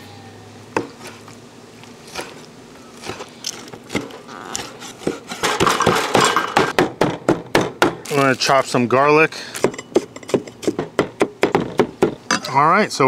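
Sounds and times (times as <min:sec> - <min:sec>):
cleaver chopping on wooden board: 0:03.9 - 0:08.0, 0:09.6 - 0:12.2.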